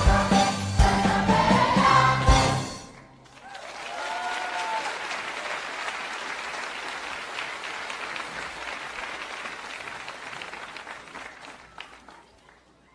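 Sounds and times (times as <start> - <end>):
crowd applauding: 3.2 - 12.9.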